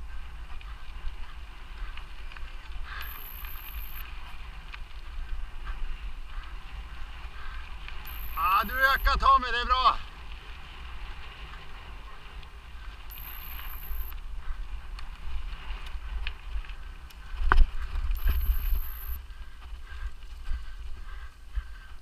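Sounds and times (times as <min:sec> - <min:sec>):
bike rattles and clicks: 0:00.0 - 0:22.0
bike tyres rumbling on trail: 0:00.0 - 0:22.0
high steady buzz: 0:02.9 - 0:04.1, 0:08.0 - 0:09.2, 0:13.1 - 0:14.2, 0:18.1 - 0:19.2.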